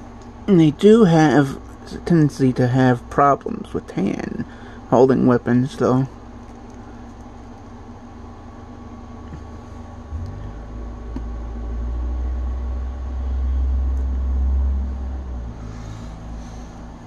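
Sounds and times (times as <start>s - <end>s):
steady low hum: 0.0s - 17.0s
deep low rumble: 9.2s - 17.0s.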